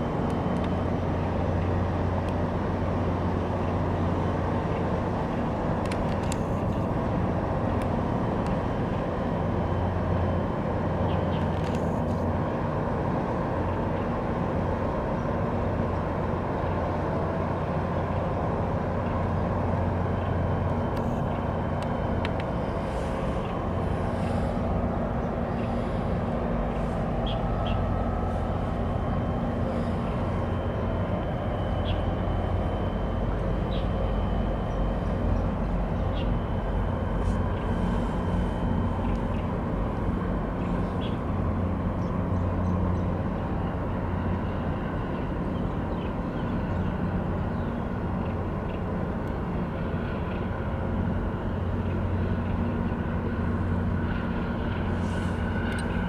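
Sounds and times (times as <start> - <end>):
faint high whine: 0.0 - 56.0
ship engine drone: 0.0 - 56.0.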